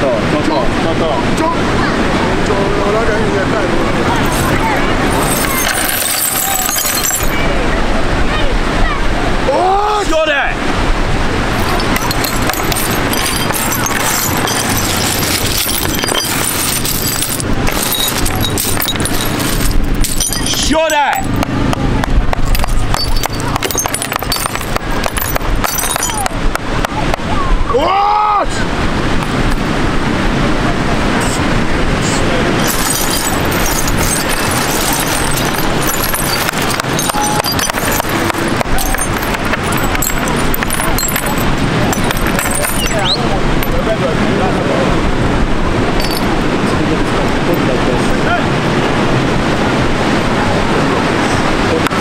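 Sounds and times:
steady noisy background: 0.0s - 52.0s
glass shards clinking and scraping: 4.2s - 7.4s, 11.5s - 21.5s, 22.3s - 26.4s, 32.6s - 43.8s, 46.0s - 46.3s.

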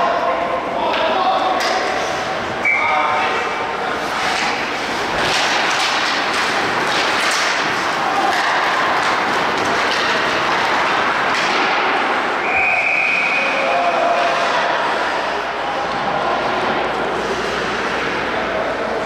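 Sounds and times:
skates scraping ice: 3.8s - 19.0s
sticks and puck hitting boards: 4.0s - 12.4s.

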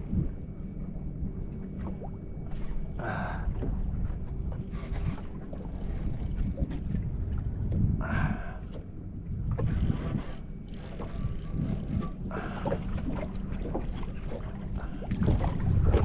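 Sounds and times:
wind buffeting microphone: 9.3s - 16.0s.

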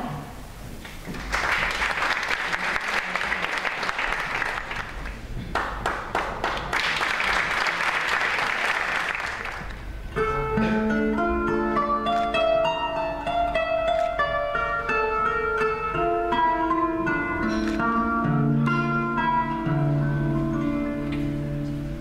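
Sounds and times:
audience applauding: 1.1s - 9.8s
plucked zither playing: 10.2s - 21.9s.

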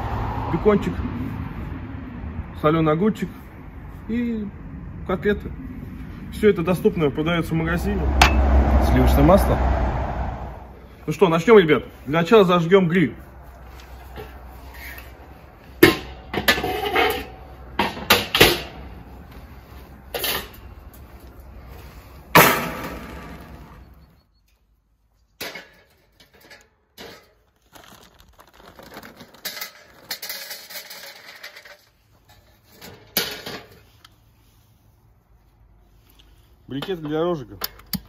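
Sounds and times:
metal clanks and knocks: 8.2s - 8.6s.

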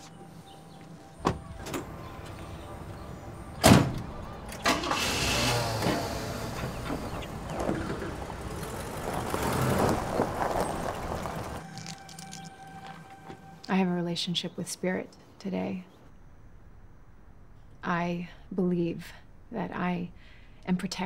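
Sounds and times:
car engine starting and running: 1.2s - 12.1s
car door slamming: 3.6s - 4.1s.

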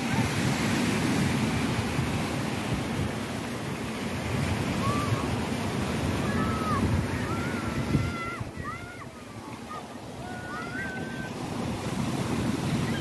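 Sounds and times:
waves washing onto beach: 0.0s - 13.0s
wind buffeting microphone: 4.2s - 9.4s.

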